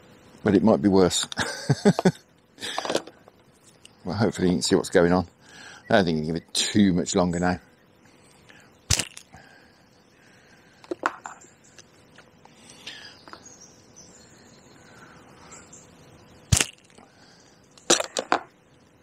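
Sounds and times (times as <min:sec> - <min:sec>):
sharp snap: 0:08.9 - 0:09.3.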